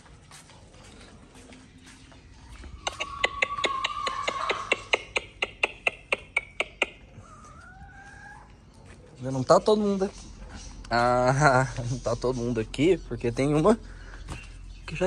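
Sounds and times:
high-pitched bird call: 2.4s - 5.0s
chickens pecking taps: 2.7s - 7.7s.

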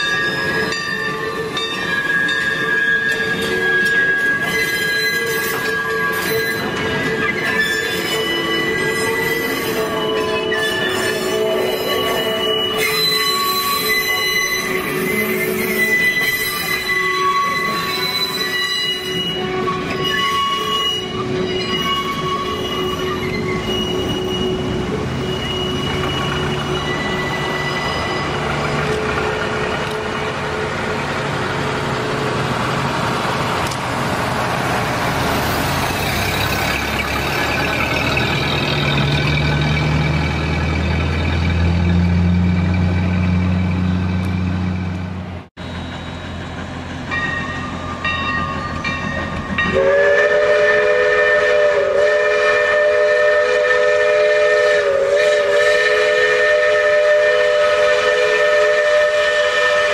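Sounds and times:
railway wheels squealing: 0.0s - 59.9s.

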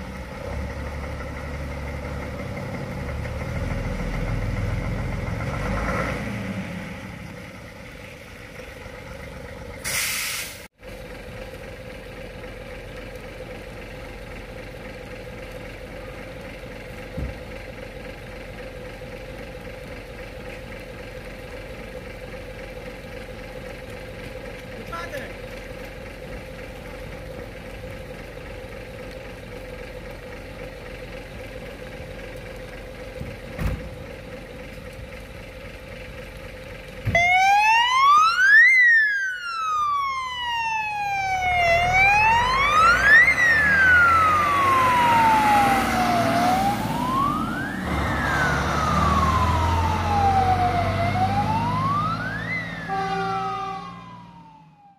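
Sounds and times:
fire engine idling: 0.0s - 5.5s, 7.0s - 54.9s
siren wailing: 37.1s - 54.9s.

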